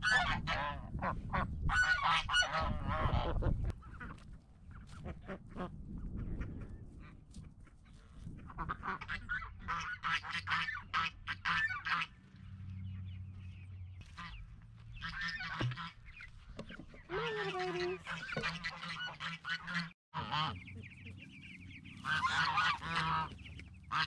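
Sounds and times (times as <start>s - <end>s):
geese honking: 0.0s - 4.2s, 8.5s - 12.3s, 14.0s - 24.0s
ducks quacking: 0.0s - 6.8s, 7.4s - 24.0s.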